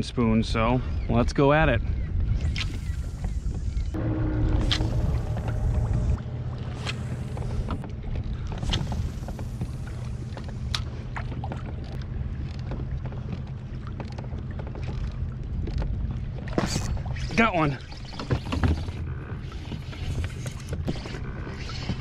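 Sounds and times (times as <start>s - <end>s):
wind rumble on microphone: 0.0s - 17.6s
small waves lapping against hull: 1.7s - 22.0s.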